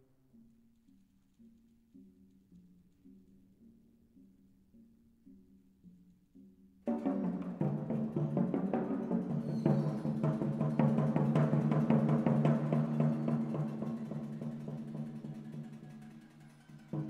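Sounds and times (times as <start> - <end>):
percussion ensemble playing: 6.9 - 17.0.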